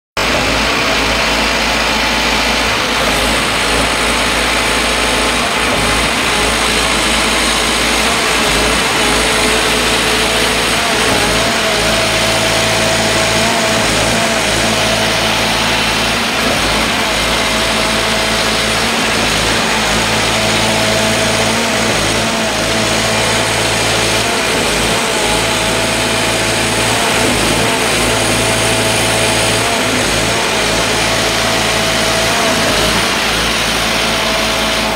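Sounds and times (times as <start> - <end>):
diesel engines running: 0.2 - 34.9.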